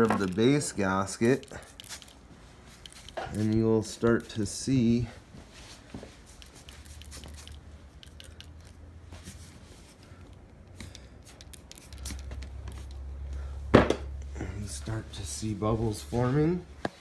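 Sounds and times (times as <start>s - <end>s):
phone handling clicks and rustles: 0.0s - 4.5s
low background hum: 0.0s - 17.0s.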